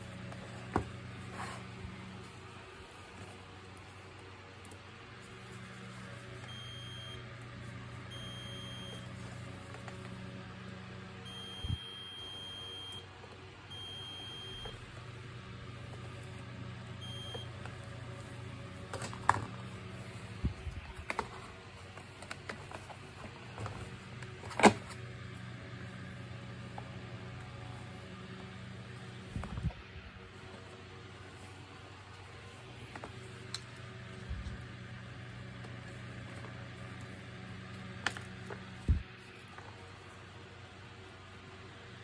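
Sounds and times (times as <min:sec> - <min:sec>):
steady low hum: 0:00.0 - 0:42.0
multimeter high beeps: 0:08.1 - 0:09.0, 0:11.3 - 0:13.0, 0:13.7 - 0:14.8, 0:17.0 - 0:17.5.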